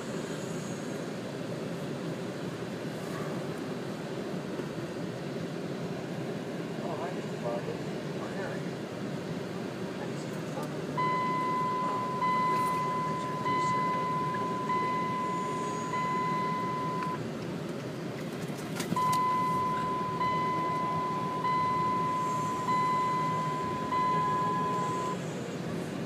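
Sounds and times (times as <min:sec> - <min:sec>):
car road and engine noise: 0:00.0 - 0:26.0
high electronic warning chime: 0:11.0 - 0:17.2, 0:19.0 - 0:25.2.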